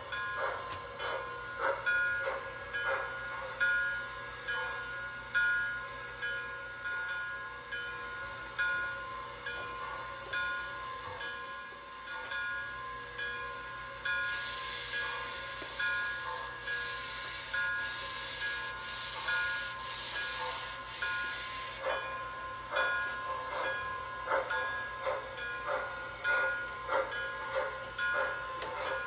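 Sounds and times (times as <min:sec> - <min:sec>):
steam hiss: 0:14.1 - 0:26.6.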